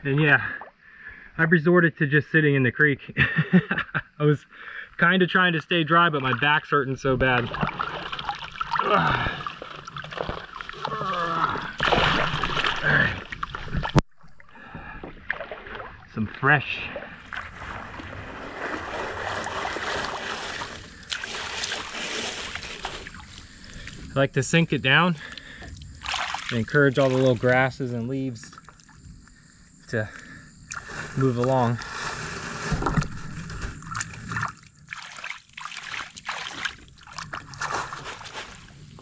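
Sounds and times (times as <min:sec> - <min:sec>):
water and gravel swishing in sifter: 0:05.6 - 0:13.9, 0:15.3 - 0:25.3, 0:26.0 - 0:28.5, 0:30.8 - 0:39.0.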